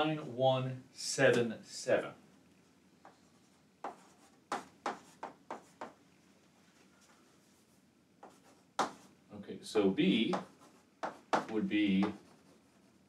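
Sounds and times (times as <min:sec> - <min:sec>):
chalk strokes on a chalkboard: 0:03.8 - 0:06.0.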